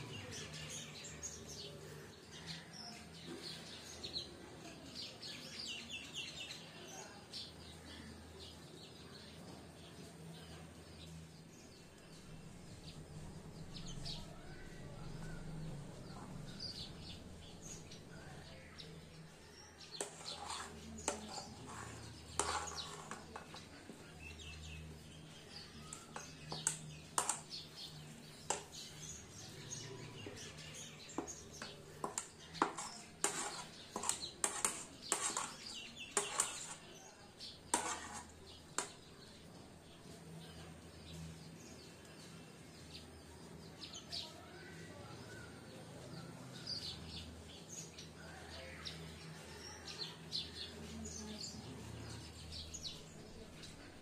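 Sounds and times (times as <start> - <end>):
metal spoon scraping a plate: 16.0 - 24.8, 25.6 - 39.1.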